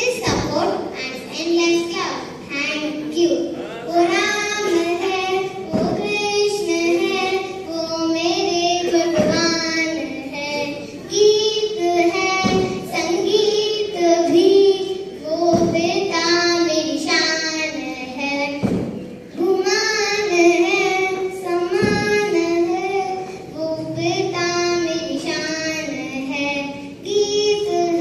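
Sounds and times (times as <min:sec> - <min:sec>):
child singing: 0:00.0 - 0:28.0
thud: 0:05.7 - 0:06.2, 0:09.0 - 0:09.6, 0:12.4 - 0:12.9, 0:15.4 - 0:16.0, 0:18.4 - 0:19.0, 0:21.7 - 0:22.3.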